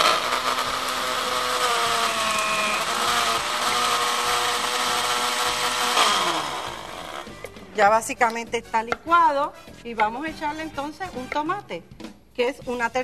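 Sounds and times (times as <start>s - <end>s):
blender motor whining: 0.0s - 7.4s.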